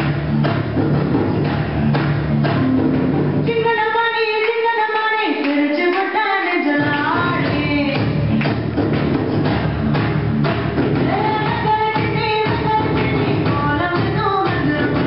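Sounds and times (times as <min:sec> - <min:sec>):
woman singing: 0:03.4 - 0:08.2, 0:11.0 - 0:15.0
dance song with steady beat: 0:05.5 - 0:15.0.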